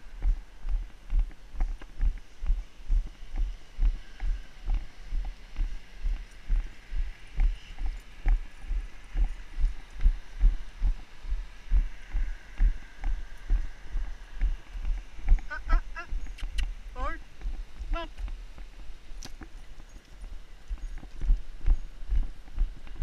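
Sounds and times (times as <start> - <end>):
footsteps running on pavement: 17.3 - 23.0.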